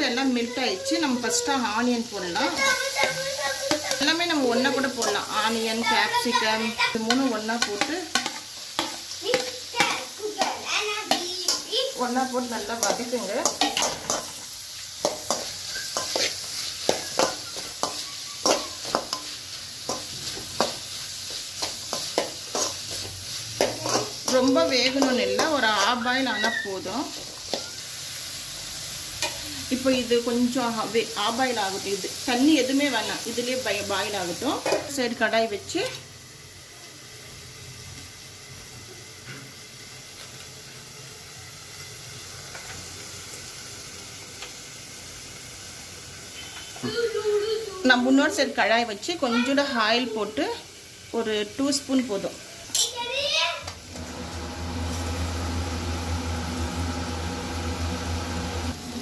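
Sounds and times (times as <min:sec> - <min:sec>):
vegetables sizzling in butter: 0:00.0 - 0:59.0
metal spatula scraping a pan: 0:02.4 - 0:28.0.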